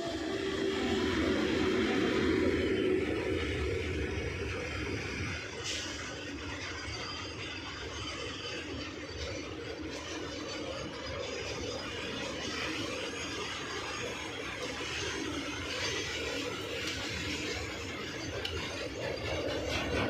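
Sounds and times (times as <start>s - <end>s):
steel wheels running on rails: 0.0s - 20.0s.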